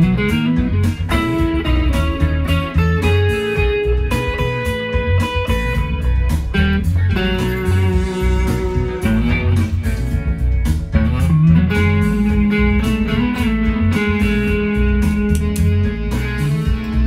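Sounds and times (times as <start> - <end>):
electric guitar lead line: 0.0 - 17.0.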